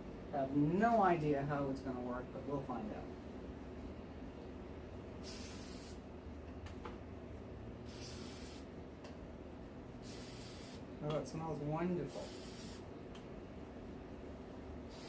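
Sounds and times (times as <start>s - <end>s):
aerosol can spraying: 5.2s - 6.0s, 7.9s - 8.7s, 10.0s - 10.8s, 12.1s - 12.8s.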